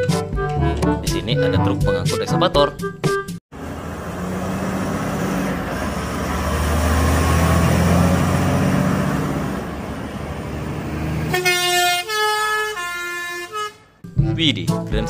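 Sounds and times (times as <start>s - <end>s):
truck diesel engine humming: 3.5s - 14.0s
tyre and road noise: 3.5s - 14.0s.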